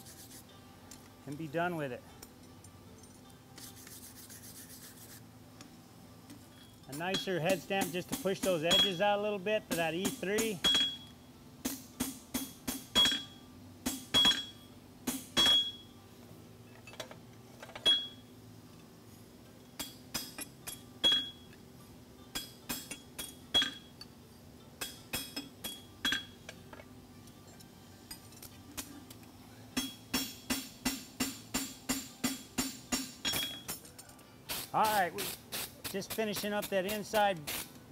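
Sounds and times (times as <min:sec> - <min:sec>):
hammer ringing on anvil: 0:07.0 - 0:09.0, 0:09.8 - 0:11.1, 0:12.0 - 0:15.9, 0:29.8 - 0:33.7.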